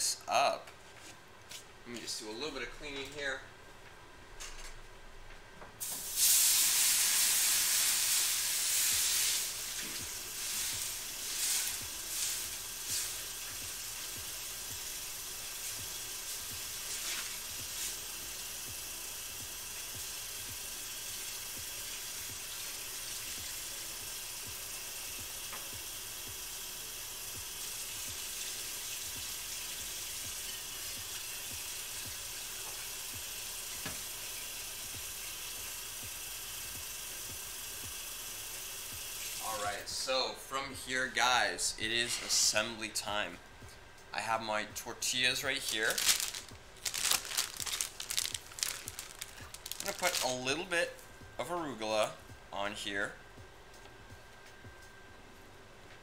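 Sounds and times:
water hissing on a hot pan: 0:05.8 - 0:39.8, 0:45.6 - 0:50.7.

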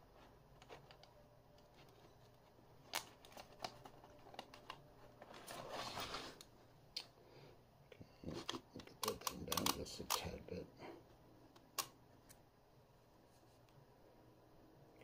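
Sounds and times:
plastic scraping rustle: 0:01.7 - 0:06.5
plastic cassette clicking: 0:02.8 - 0:04.8, 0:08.4 - 0:10.3.

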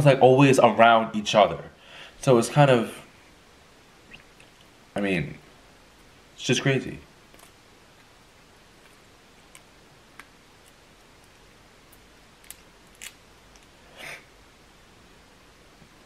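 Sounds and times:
crab shell crackling: 0:07.3 - 0:13.8.

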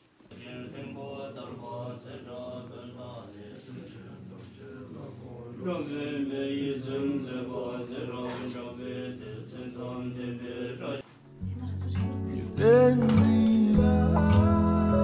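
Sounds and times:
men chanting a prayer: 0:00.3 - 0:11.0.

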